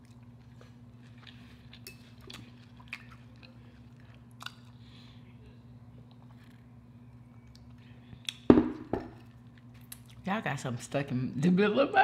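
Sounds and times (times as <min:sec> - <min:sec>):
soft chewing: 0:00.0 - 0:08.5, 0:09.2 - 0:10.3
steady low hum: 0:00.0 - 0:12.0.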